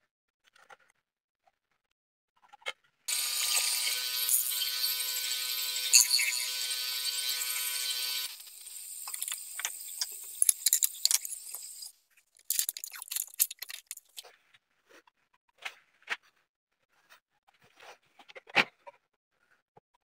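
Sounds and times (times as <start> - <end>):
disc sander whirring: 3.1 - 11.9
hands handling disc clicks and rustles: 12.4 - 14.2.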